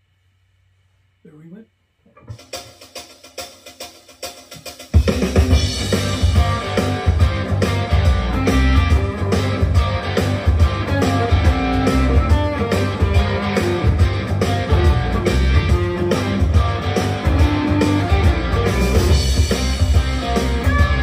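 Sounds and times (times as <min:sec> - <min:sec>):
blues-rock backing track: 0:02.1 - 0:21.0
drum kit beat: 0:02.2 - 0:21.0
electric guitar playing: 0:05.6 - 0:21.0.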